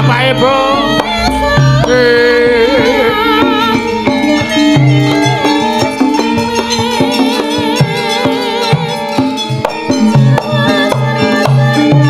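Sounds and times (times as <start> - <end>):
metallophone tones: 0.0 - 12.0
wavering melodic line: 0.0 - 12.0
low drum strokes: 0.6 - 6.5.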